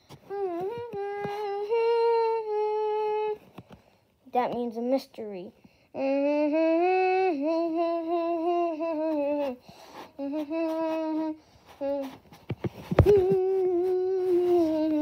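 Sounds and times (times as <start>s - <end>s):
person humming: 0.2s - 3.4s, 6.0s - 12.2s, 12.8s - 15.0s.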